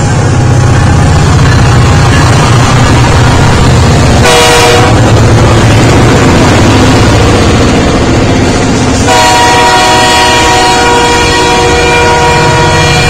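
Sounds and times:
diesel locomotives rumbling: 0.0s - 13.0s
locomotive air horn: 4.2s - 5.1s, 9.0s - 13.0s.

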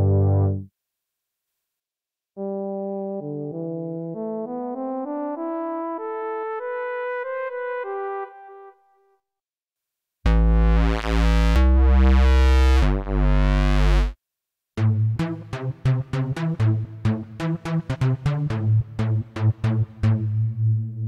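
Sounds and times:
buzzy synthesizer lead: 10.3s - 14.2s
staccato plucked synth notes: 14.8s - 20.7s.

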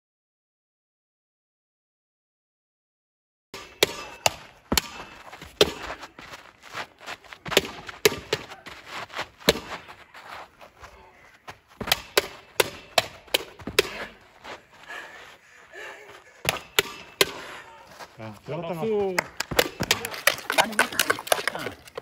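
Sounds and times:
practice sword striking padded post: 11.8s - 14.1s.

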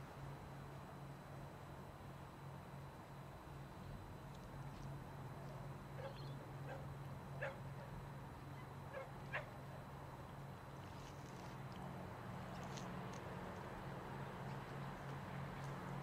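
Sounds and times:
dog yipping faintly: 6.0s - 7.6s.

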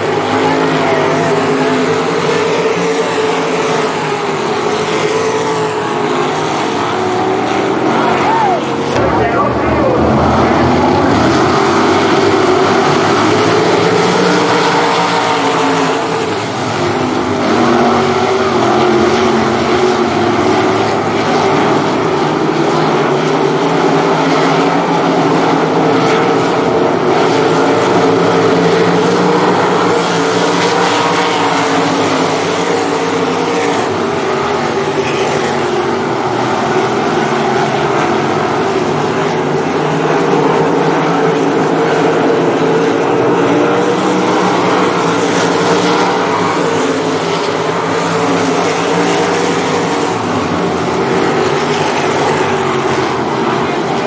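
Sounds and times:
race car engines at high revs: 0.0s - 54.0s.

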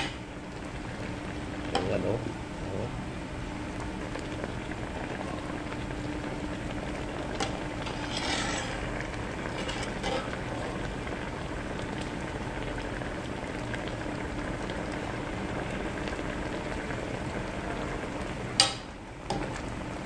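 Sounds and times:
sauce bubbling in a pot: 0.0s - 20.0s
spatula scraping a pot: 7.8s - 9.0s, 9.6s - 10.4s.

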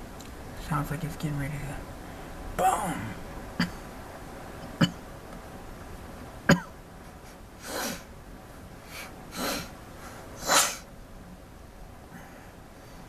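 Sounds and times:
rain hissing: 0.0s - 12.9s
person breathing bursts: 7.6s - 8.1s, 8.8s - 10.9s.

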